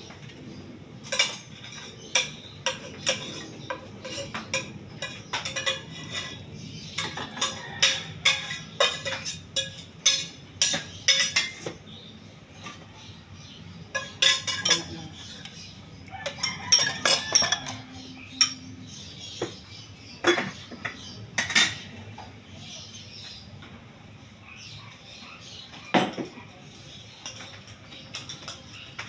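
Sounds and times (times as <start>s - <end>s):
dishes and utensils clinking: 1.0s - 11.9s, 12.5s - 12.9s, 13.8s - 22.4s, 25.8s - 29.0s.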